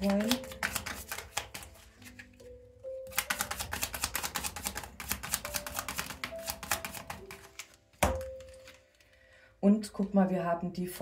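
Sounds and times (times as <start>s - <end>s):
cards being shuffled: 0.0s - 2.4s, 3.1s - 9.1s.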